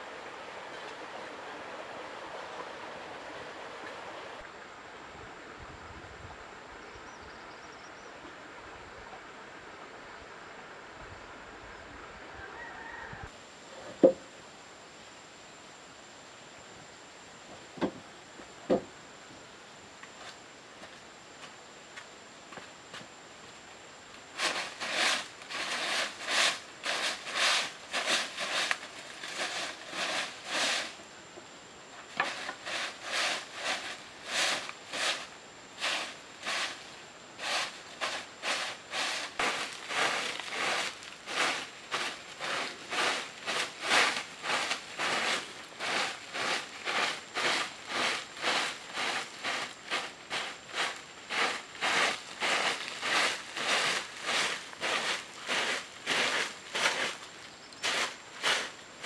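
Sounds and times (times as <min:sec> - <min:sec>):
broom sweeping dirt ground: 0:20.0 - 0:23.2, 0:24.0 - 0:31.1, 0:32.0 - 0:59.0.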